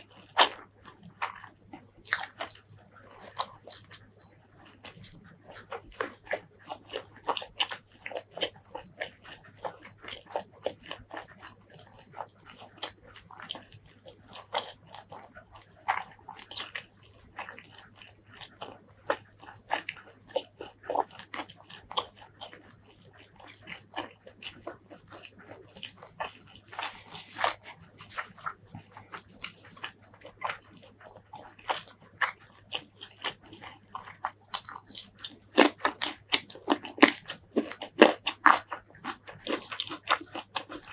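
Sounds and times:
close chewing and biting: 0.0 - 40.9.

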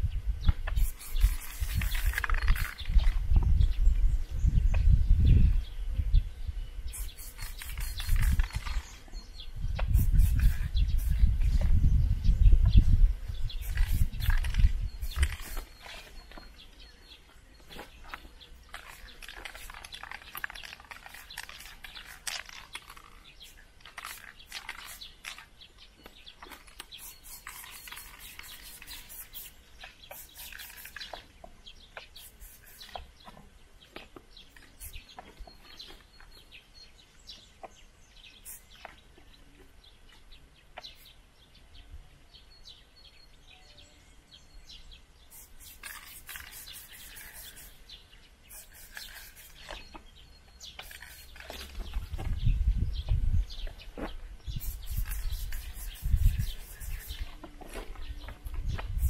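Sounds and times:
birds chirping: 0.0 - 59.0
spray paint can hissing: 0.7 - 3.1, 6.9 - 8.9, 9.8 - 11.6, 13.4 - 16.1, 18.8 - 25.4, 26.6 - 31.2, 32.0 - 33.0, 34.5 - 35.0, 38.4 - 38.8, 45.3 - 47.8, 48.5 - 49.8, 50.8 - 51.6, 54.5 - 57.4, 58.6 - 59.0.

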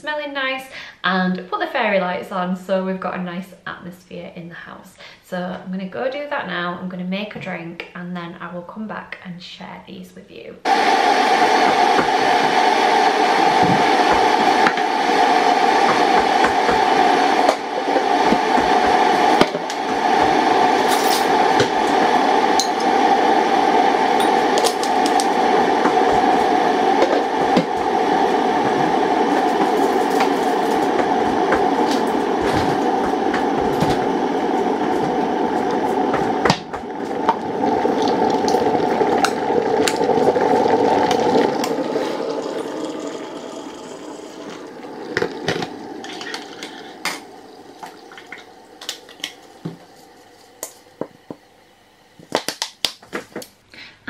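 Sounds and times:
electric kettle boiling: 10.6 - 53.5.

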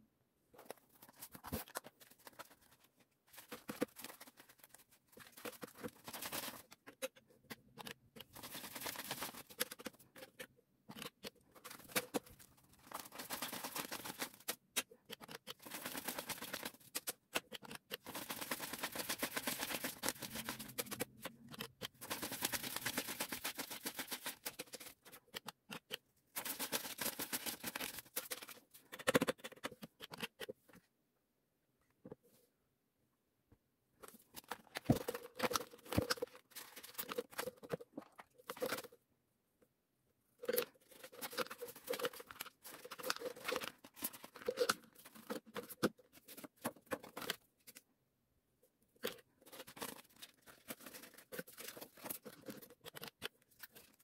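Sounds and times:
paper banknotes rustling and flicking: 1.0 - 6.8, 8.3 - 9.9, 11.6 - 14.6, 15.6 - 17.2, 18.0 - 21.1, 22.0 - 25.0, 26.4 - 28.6, 49.4 - 54.0.

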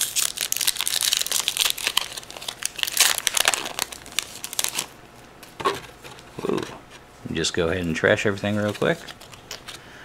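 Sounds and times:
foil wrapper crinkling and tearing: 0.0 - 5.0.

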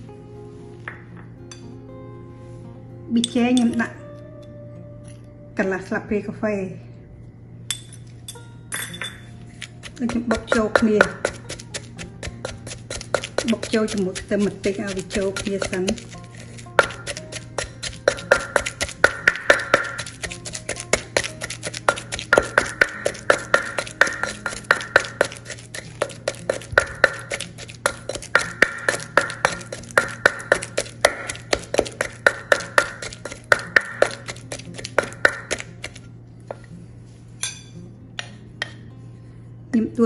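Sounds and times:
pestle pounding in a mortar: 9.6 - 36.0.

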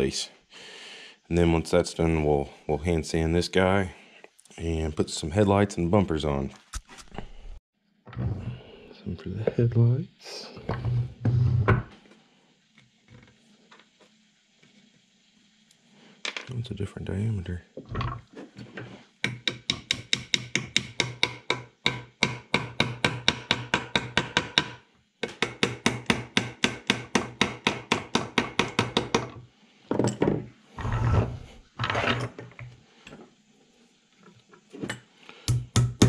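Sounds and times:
hammer tapping wooden pegs: 19.2 - 29.4, 35.4 - 36.0
wood scraping: 30.7 - 33.3.

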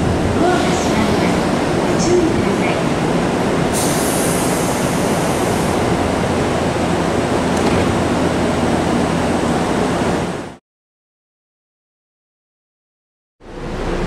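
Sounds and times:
sliding train doors closing: 0.0 - 10.5
background rush of standing train: 0.0 - 10.6, 13.4 - 14.0
high air hiss: 3.7 - 5.8.

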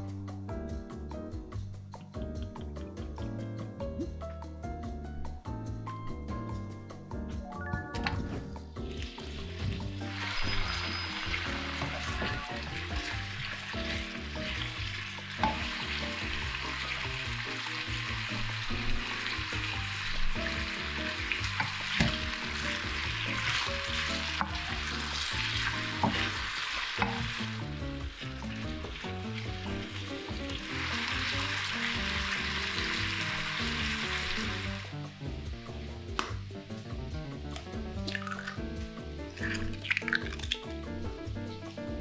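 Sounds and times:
potato slices sizzling in oil: 8.8 - 36.1, 37.6 - 40.7.

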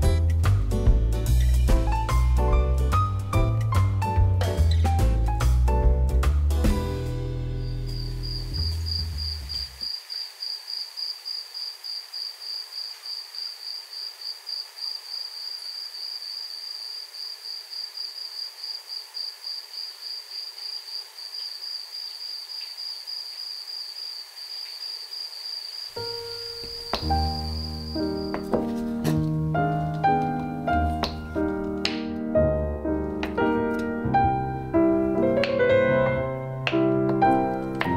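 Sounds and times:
cricket chirping: 7.5 - 28.5.

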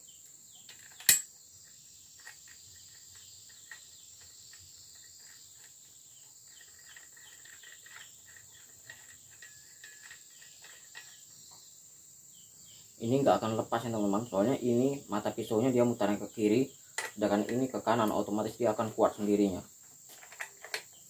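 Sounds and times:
high insect drone: 0.0 - 21.0
sharp metallic click: 0.8 - 1.3.

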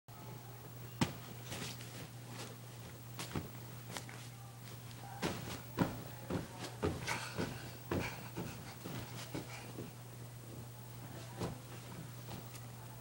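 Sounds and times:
child thumping on a bed: 5.2 - 9.9.

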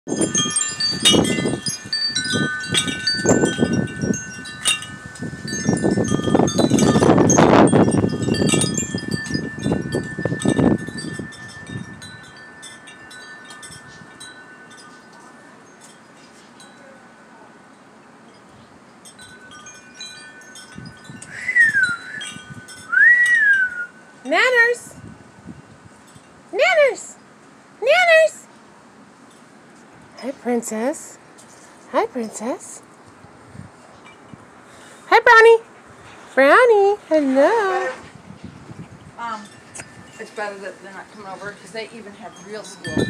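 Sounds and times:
gust of wind: 0.1 - 14.3, 20.6 - 23.9, 33.2 - 34.8, 37.5 - 40.3
wind chimes tinkling: 0.1 - 27.4, 33.6 - 35.6, 38.3 - 43.0.

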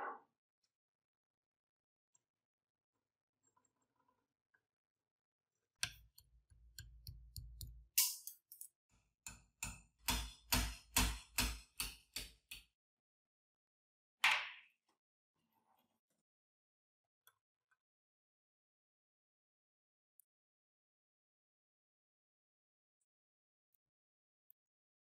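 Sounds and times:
hammer striking metal punch: 9.3 - 12.6.

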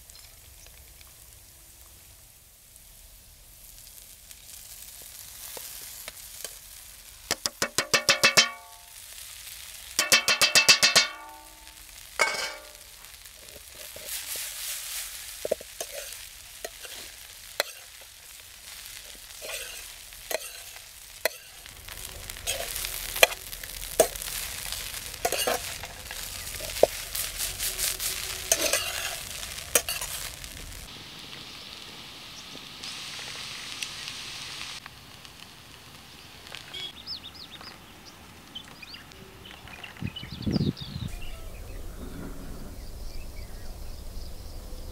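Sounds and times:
light sizzle from pan: 0.0 - 39.8
spatula scraping metal pan: 12.2 - 12.8, 15.4 - 18.1, 19.0 - 21.7, 22.4 - 24.3, 25.2 - 30.3.

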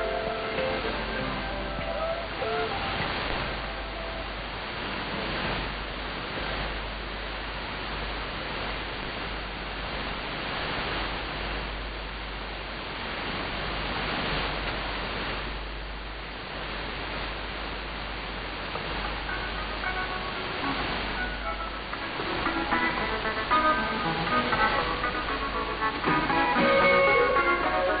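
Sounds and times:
radio hiss and static: 0.0 - 28.0.

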